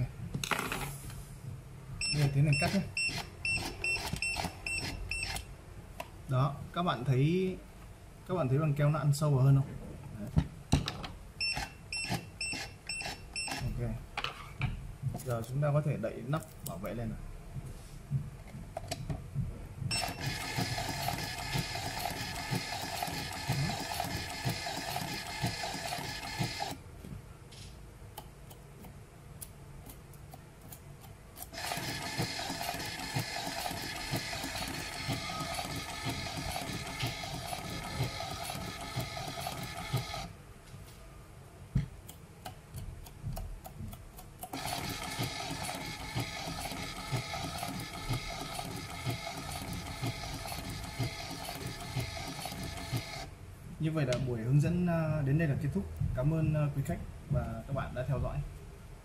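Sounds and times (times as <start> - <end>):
fine mechanical ticking: 19.9 - 26.8, 31.4 - 40.3, 42.1 - 53.3
tape cutter motor whining: 20.0 - 26.8, 31.5 - 40.3, 44.5 - 53.3.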